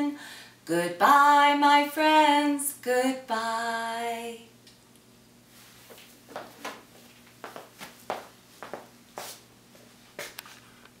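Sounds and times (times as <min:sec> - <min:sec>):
soft footsteps: 0:05.5 - 0:11.0.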